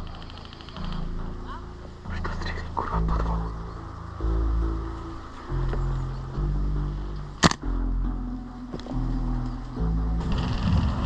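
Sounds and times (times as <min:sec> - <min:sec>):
background music with low bass: 0:00.0 - 0:11.0
airsoft rifle shot: 0:07.4 - 0:07.6.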